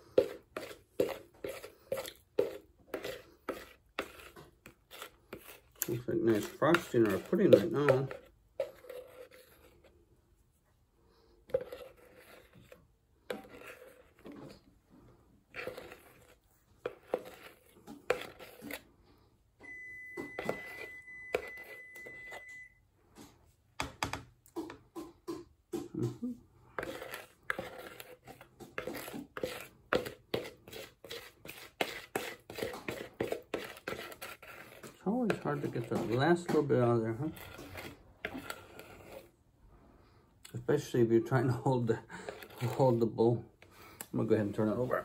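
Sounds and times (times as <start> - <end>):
spatula scraping a mixing bowl: 0.0 - 23.3, 26.0 - 39.8, 40.6 - 45.0
oven electronic beep: 19.6 - 22.8.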